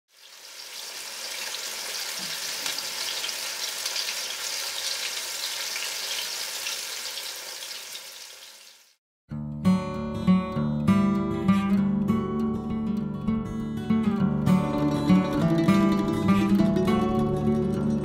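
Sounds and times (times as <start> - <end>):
fish frying in hot oil: 0.1 - 9.0.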